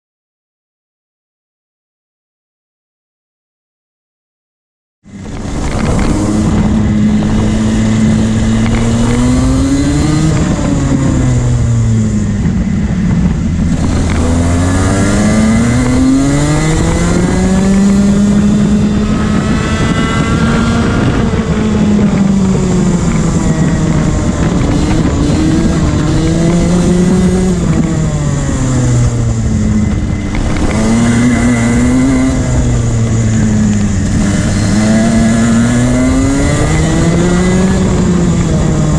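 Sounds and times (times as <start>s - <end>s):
kart engine revving: 5.1s - 38.9s.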